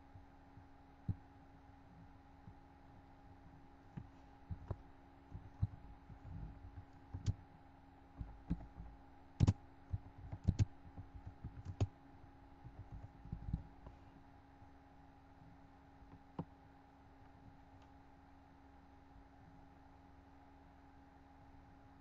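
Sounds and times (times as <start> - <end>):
faint steady hum: 0.0 - 22.0
computer keyboard typing: 5.4 - 7.4, 8.2 - 11.9, 12.6 - 13.9.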